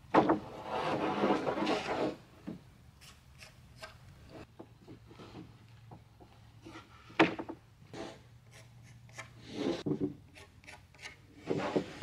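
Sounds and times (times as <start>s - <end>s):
boards scraping together: 0.2s - 2.2s.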